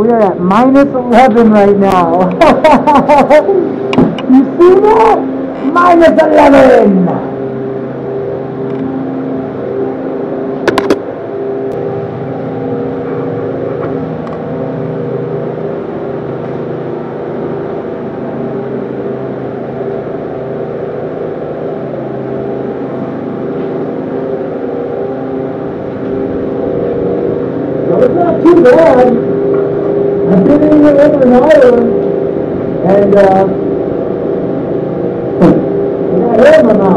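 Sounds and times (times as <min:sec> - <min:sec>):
freezer fan humming and whooshing: 0:00.0 - 0:36.9.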